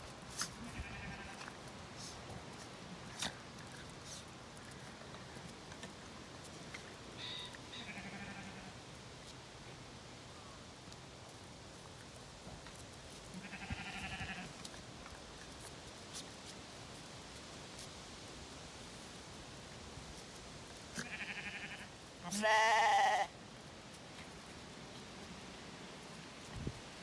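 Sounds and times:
sheep bleating: 0.6 - 1.5, 7.2 - 8.8, 13.3 - 14.6, 21.0 - 23.3.

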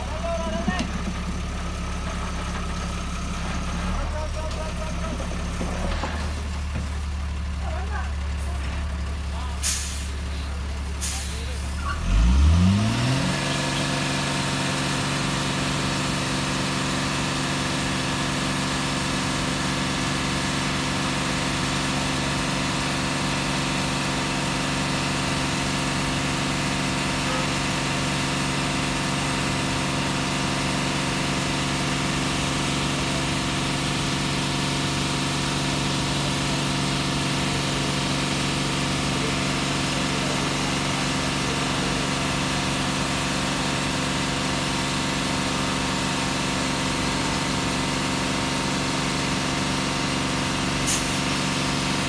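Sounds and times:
diesel truck engine idling: 0.0 - 52.0.

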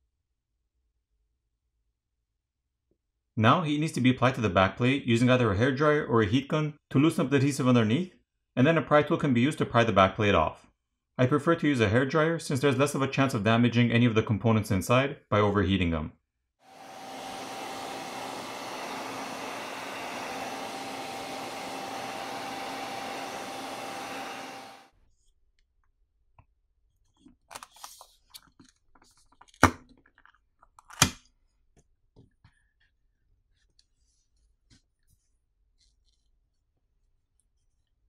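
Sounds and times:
hairdryer blowing: 16.7 - 24.9.

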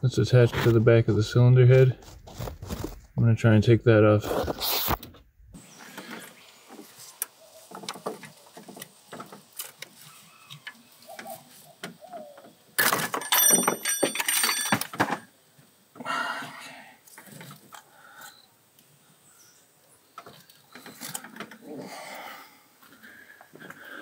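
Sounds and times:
high ringing tones: 13.2 - 15.0.

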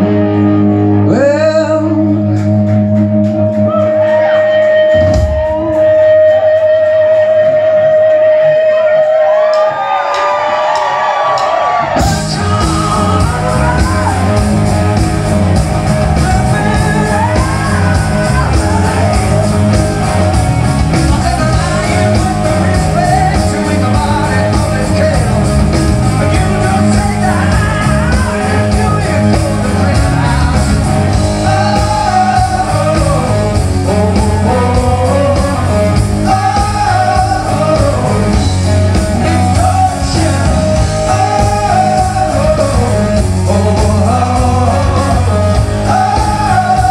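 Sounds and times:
bass guitar: 0.0 - 46.9
drums: 0.0 - 46.9
electric guitars: 0.0 - 46.9
male lead vocal singing: 1.0 - 2.5, 11.9 - 15.0, 16.0 - 20.2, 20.9 - 46.9.

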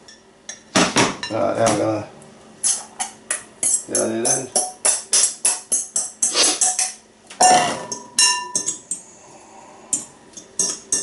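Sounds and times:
metal bowl clanking and ringing: 7.4 - 8.8.

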